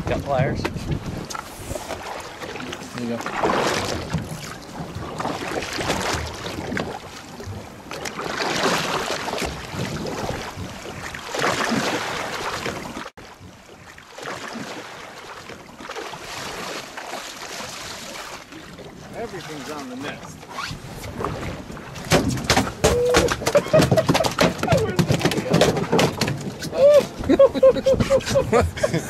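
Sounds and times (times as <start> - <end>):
wind on microphone: 0.0 - 2.1, 9.4 - 11.1
water sloshing against hull: 0.0 - 29.0.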